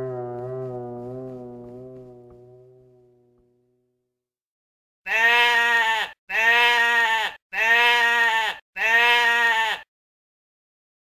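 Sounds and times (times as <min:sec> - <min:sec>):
sheep bleating: 0:05.1 - 0:09.9.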